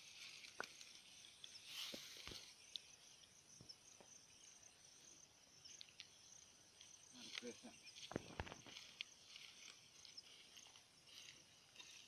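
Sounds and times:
dry straw rustling underfoot: 0.0s - 3.0s, 6.7s - 12.0s
insects chirring: 0.0s - 12.0s.

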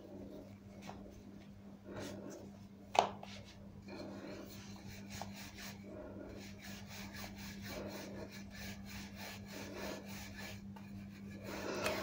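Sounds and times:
rolling pin rubbing on dough: 3.2s - 12.0s.

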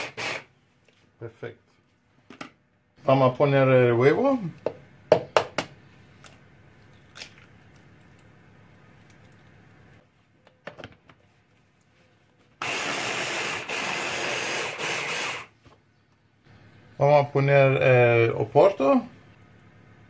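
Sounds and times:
hand blender chopper running: 0.0s - 0.4s, 12.6s - 15.5s.

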